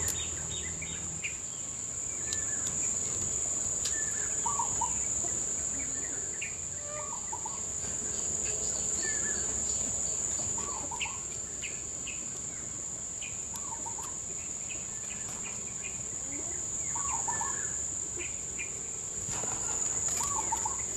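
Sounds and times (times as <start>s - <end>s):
high-pitched insect drone: 0.0s - 12.2s
bird chirps: 3.8s - 16.1s, 16.8s - 18.8s, 20.0s - 20.9s
bird wavering call: 3.9s - 7.6s, 10.6s - 11.2s, 16.9s - 18.3s, 20.1s - 20.9s.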